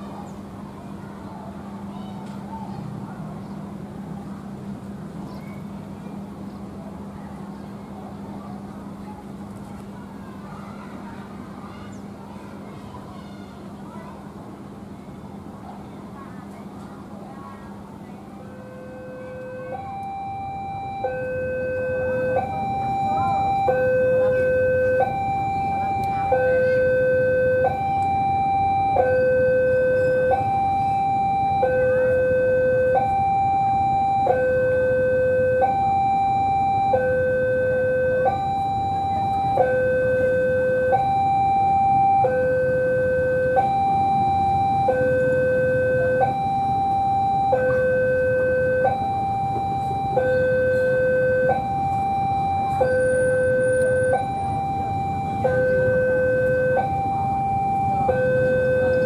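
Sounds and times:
level crossing two-tone alarm: 18.4s - 59.0s.

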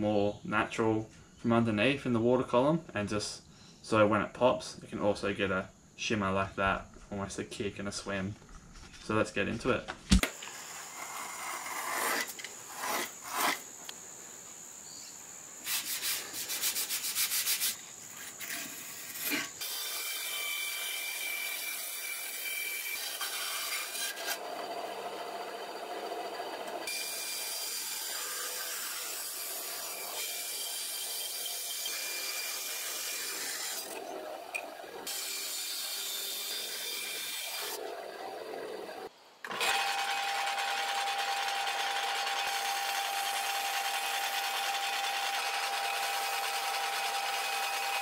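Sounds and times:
bandsaw cutting timber: 10.2s - 13.7s, 15.7s - 48.0s
utility knife scoring paper: 10.4s - 13.7s, 15.6s - 19.6s.

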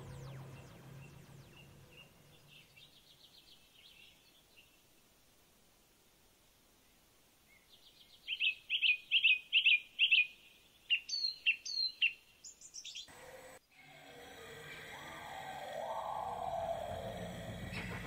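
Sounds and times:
songbird singing: 0.0s - 5.2s, 6.4s - 18.0s.

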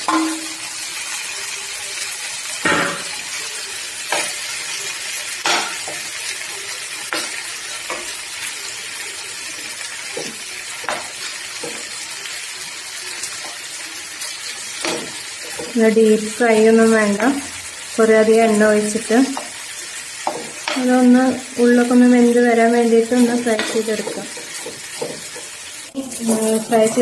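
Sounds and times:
prawns sizzling in oil: 0.0s - 27.0s
metal spoon scraping a pan: 23.0s - 27.0s.

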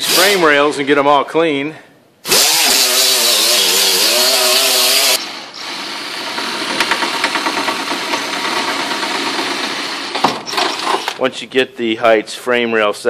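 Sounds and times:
electric drill boring metal: 0.0s - 0.4s, 2.3s - 11.2s
power grinder grinding steel: 0.0s - 0.4s, 2.3s - 11.2s.

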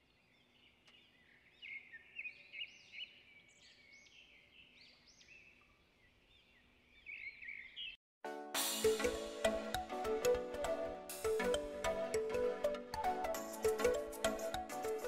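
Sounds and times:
birds chirping: 0.0s - 8.0s.

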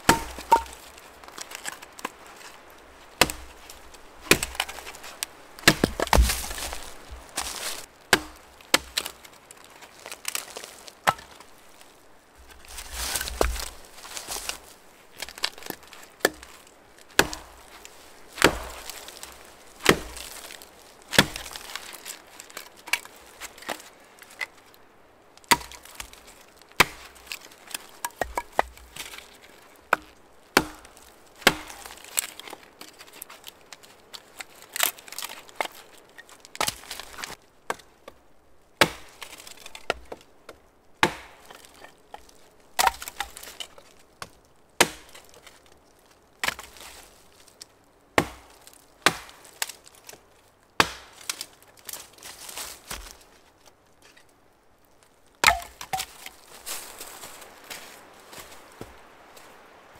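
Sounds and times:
hatchet chopping wood: 0.0s - 0.8s, 3.2s - 3.5s, 4.3s - 4.9s, 5.6s - 6.8s, 7.4s - 9.2s, 11.0s - 11.3s, 13.0s - 13.8s, 15.3s - 16.5s, 17.2s - 17.7s, 18.4s - 19.0s, 19.8s - 20.5s, 21.2s - 21.6s, 25.5s - 26.1s, 26.8s - 27.2s, 27.8s - 29.2s, 29.9s - 32.6s, 38.8s - 41.8s, 42.8s - 43.6s, 44.2s - 45.2s, 48.2s - 49.4s, 50.8s - 51.4s, 55.4s - 56.3s.

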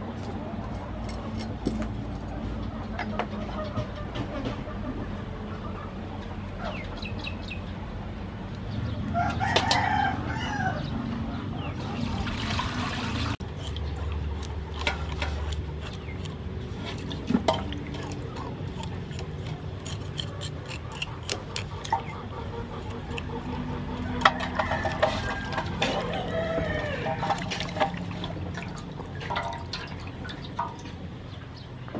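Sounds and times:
chickens clucking: 2.1s - 31.9s
water splashing in basin: 11.8s - 13.4s, 27.0s - 31.0s
knife scraping fish: 13.4s - 27.8s.

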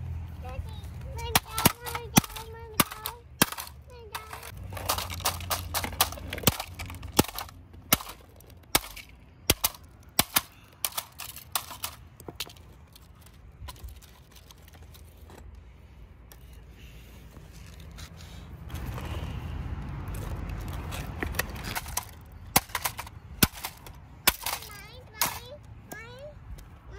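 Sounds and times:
toy hammer cracking on plastic: 1.2s - 14.7s, 21.2s - 26.0s.

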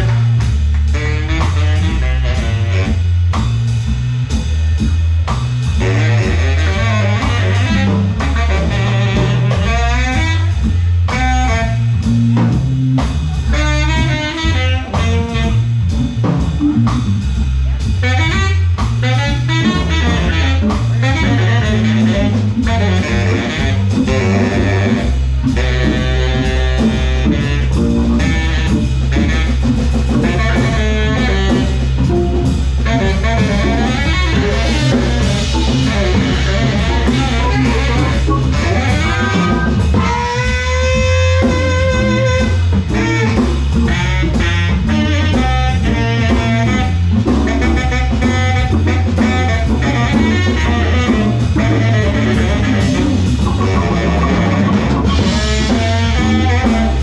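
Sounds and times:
baritone saxophone lead: 0.0s - 57.0s
bass line: 0.0s - 57.0s
drum kit: 0.0s - 57.0s
organ: 34.2s - 40.0s.

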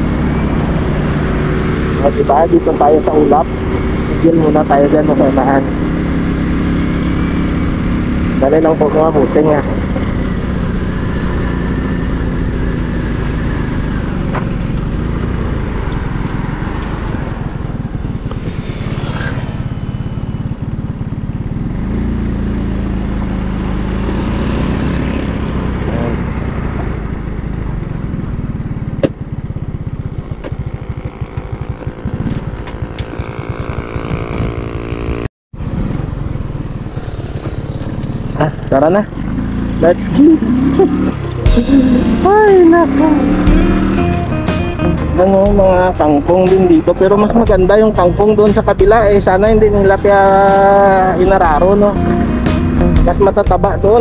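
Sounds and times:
motorcycle engine running: 0.0s - 54.0s
road noise: 0.0s - 54.0s.

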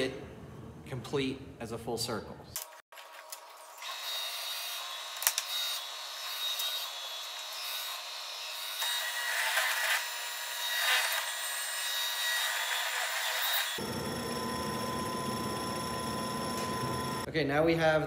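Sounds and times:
drill press motor running: 13.7s - 17.3s.

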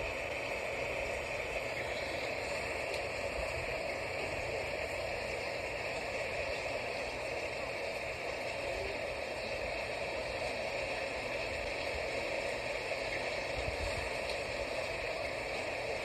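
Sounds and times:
light rain falling: 0.0s - 16.0s.

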